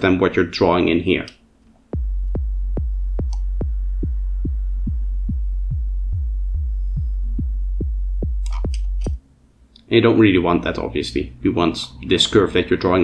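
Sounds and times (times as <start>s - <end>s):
synthesized kick drum: 2.0s - 9.2s.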